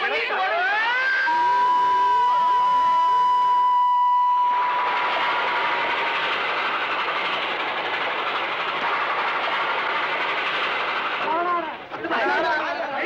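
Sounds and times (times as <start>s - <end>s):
steam train rushing: 1.1s - 12.6s
held high tone: 1.2s - 4.8s.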